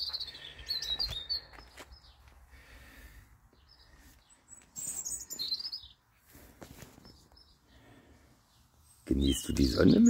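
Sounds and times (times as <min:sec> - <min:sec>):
small songbirds chirping: 0:00.0 - 0:10.0.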